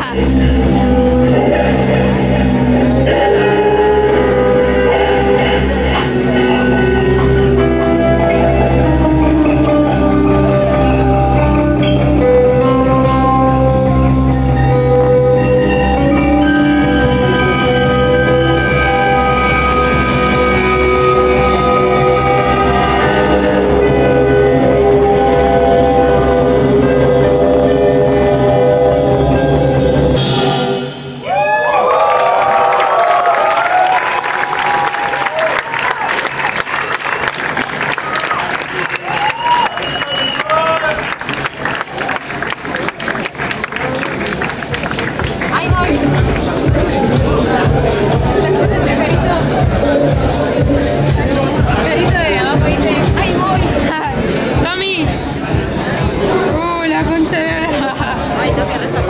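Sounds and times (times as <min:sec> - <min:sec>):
rock band music: 0:00.0 - 0:31.2, 0:44.6 - 0:59.0.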